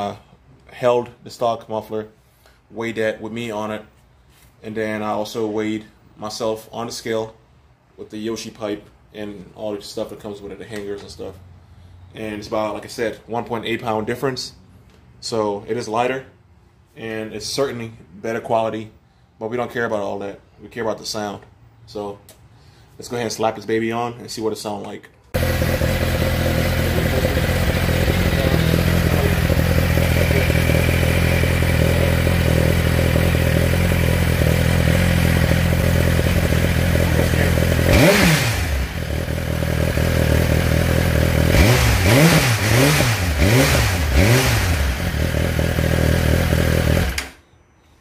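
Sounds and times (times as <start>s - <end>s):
motorcycle engine idling and revving: 25.4s - 47.3s.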